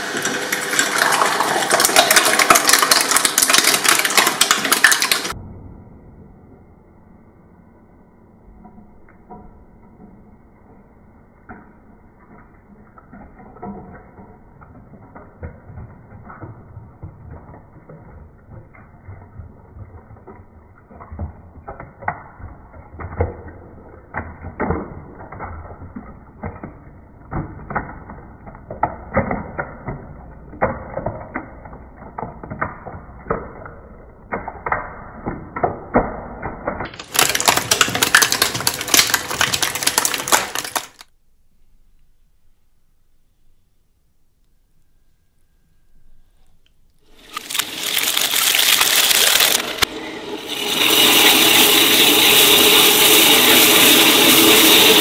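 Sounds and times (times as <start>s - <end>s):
shredder tearing slime: 0.0s - 5.4s, 36.8s - 41.1s, 47.1s - 49.9s
wet crackling and popping: 12.9s - 41.2s, 46.9s - 49.9s.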